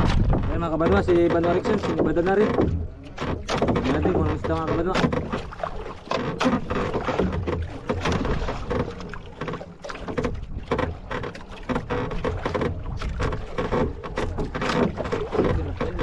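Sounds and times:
wind on microphone: 0.0s - 5.7s
water sloshing against boat hull: 0.0s - 16.0s.

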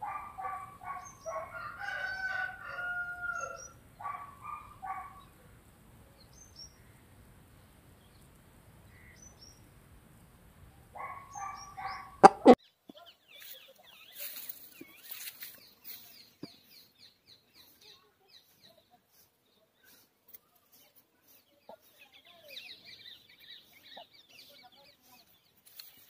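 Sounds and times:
rooster crowing: 1.2s - 3.8s
rooster clucking: 11.4s - 12.6s.

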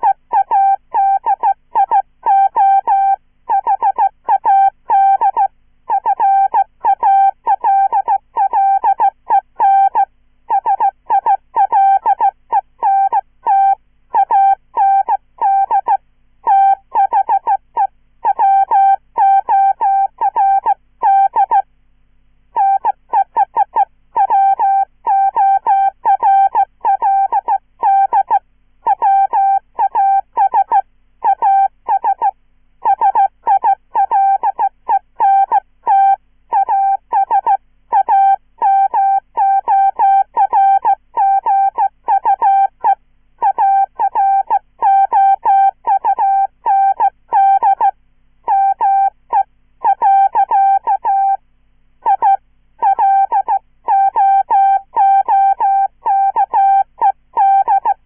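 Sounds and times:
morse code tone: 18.2s - 21.6s, 22.6s - 47.9s, 48.5s - 51.4s, 52.0s - 58.0s.

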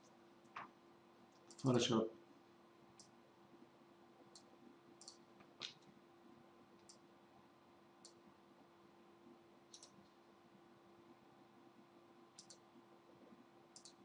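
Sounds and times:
computer mouse clicks: 1.3s - 1.7s, 3.0s - 3.2s, 4.3s - 5.9s, 6.8s - 7.0s, 8.0s - 8.2s, 9.7s - 10.2s, 12.4s - 12.7s, 13.7s - 14.0s.

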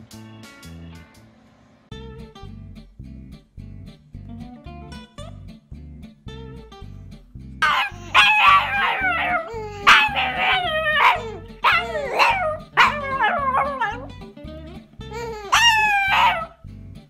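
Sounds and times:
dog howling and yipping: 7.6s - 14.1s, 15.2s - 16.6s.

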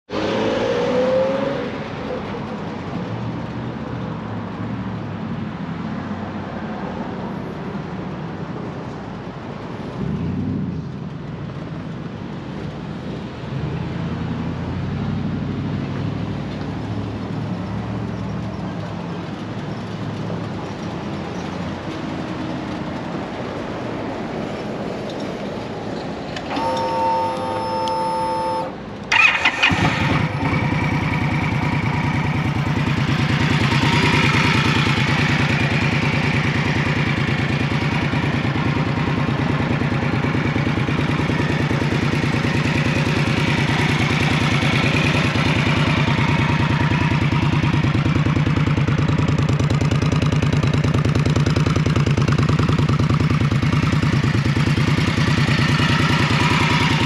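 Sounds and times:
cars passing on street: 0.1s - 57.0s
brief steady whine: 26.4s - 28.8s
motorcycle engine starting: 26.4s - 57.0s.

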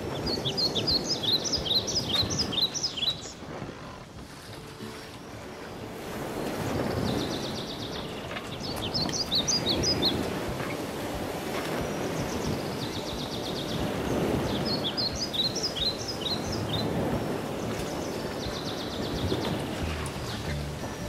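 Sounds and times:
small birds chirping: 0.0s - 4.0s, 6.2s - 10.9s, 11.8s - 21.0s
bird trills: 0.1s - 3.4s, 11.9s - 20.5s.

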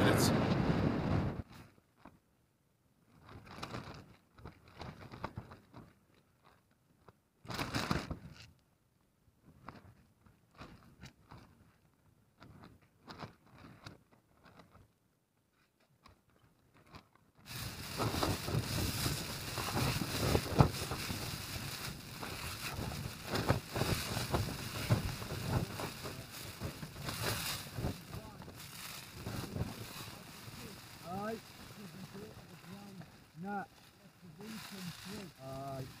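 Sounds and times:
gear and packets rustling: 3.1s - 8.4s, 16.7s - 36.0s.

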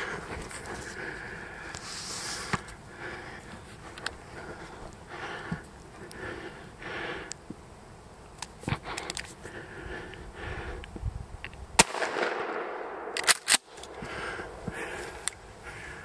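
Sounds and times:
shotgun shot: 11.8s - 13.2s.

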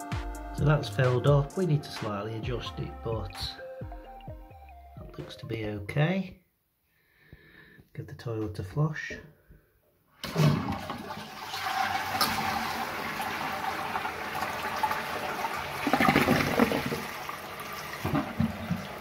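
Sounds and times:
toilet flushing: 10.2s - 19.0s
water running into cistern: 10.2s - 19.0s.

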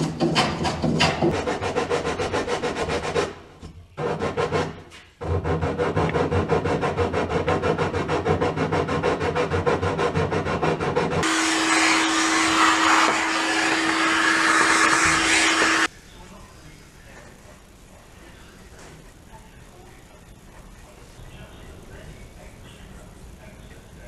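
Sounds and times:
hand rubbing wood: 4.0s - 15.9s
vacuum cleaner humming: 11.2s - 15.9s.

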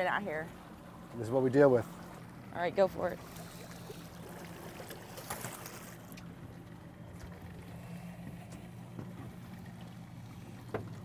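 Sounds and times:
boat engine idling: 0.0s - 11.0s
water and wind noise: 0.0s - 11.0s
splash into water: 3.2s - 6.2s.

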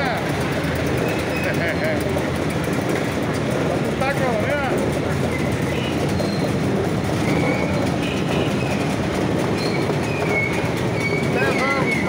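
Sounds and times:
motorcycles and scooters rumbling: 0.0s - 12.0s.

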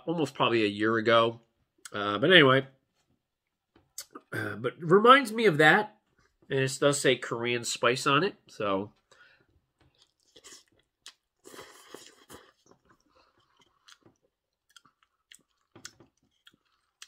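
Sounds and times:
person chewing noodles: 9.8s - 17.0s.

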